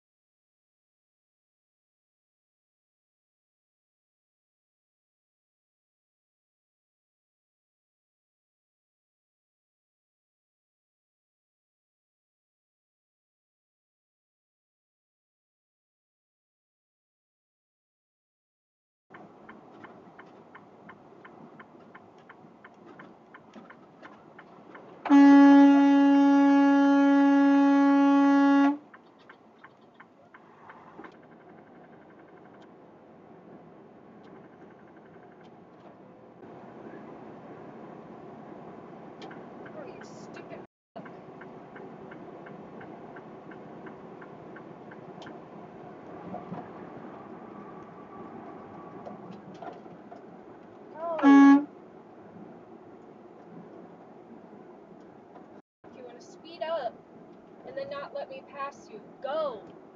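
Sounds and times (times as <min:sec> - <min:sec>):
truck engine and road drone: 0:19.1 - 0:59.9
truck horn blast: 0:25.0 - 0:28.8, 0:51.1 - 0:51.7.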